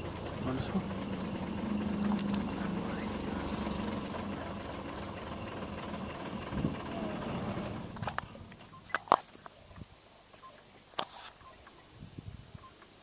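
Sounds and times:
vehicle engine idling: 0:00.0 - 0:10.8
sharp clicks: 0:02.1 - 0:02.5.

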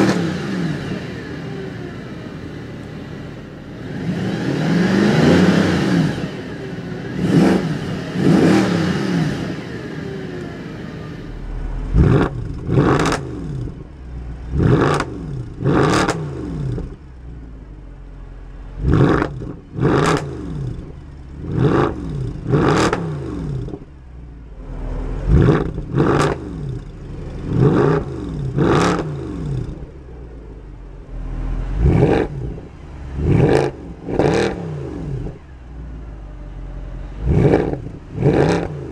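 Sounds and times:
car engine revving: 0:00.0 - 0:38.9.

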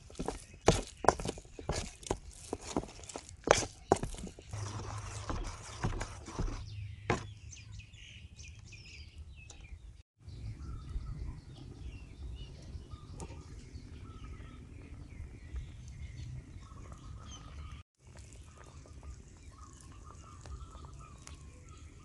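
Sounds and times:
small birds chirping: 0:00.0 - 0:22.0
spoon scraping batter in metal bowl: 0:00.2 - 0:07.3.

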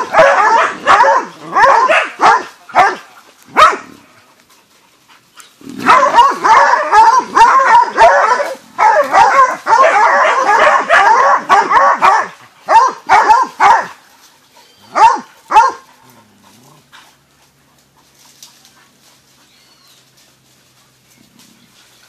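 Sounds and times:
dogs barking: 0:00.0 - 0:04.1, 0:05.7 - 0:14.0, 0:14.6 - 0:16.2.

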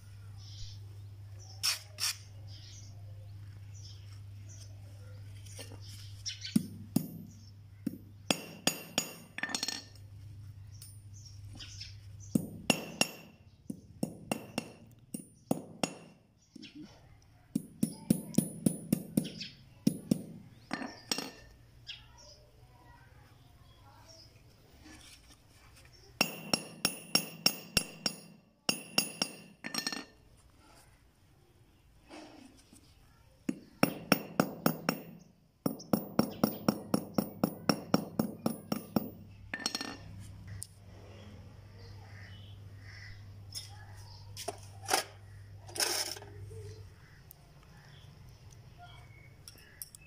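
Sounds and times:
hammer striking metal rivet: 0:06.6 - 0:10.0, 0:12.4 - 0:16.2, 0:17.6 - 0:21.5, 0:26.2 - 0:30.1, 0:33.5 - 0:40.0
hammer clinking on metal: 0:26.2 - 0:30.1.

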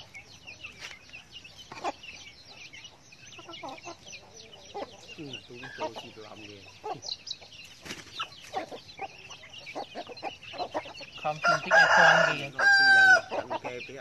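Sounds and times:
chicks peeping: 0:00.0 - 0:14.0
hens clucking softly: 0:00.0 - 0:14.0
rooster crowing: 0:11.4 - 0:13.5.

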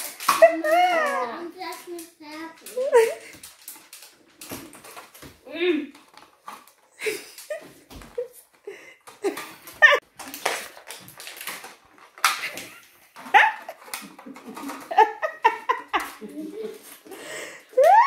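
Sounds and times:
popcorn crunching: 0:10.0 - 0:17.8
voice-like squeals and cries: 0:17.8 - 0:18.0.

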